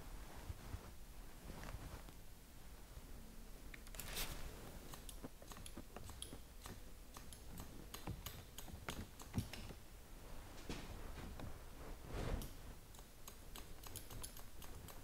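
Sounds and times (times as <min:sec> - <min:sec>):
shears snipping hair: 0:04.0 - 0:09.8, 0:12.4 - 0:15.0.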